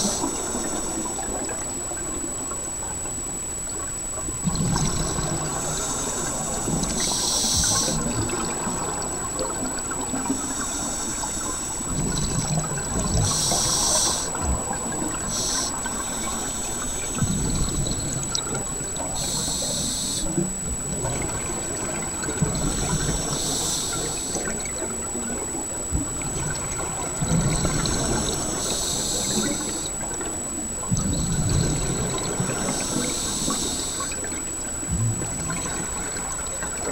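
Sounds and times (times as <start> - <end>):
thin steady high tone: 12.8 - 14.4, 15.0 - 20.4.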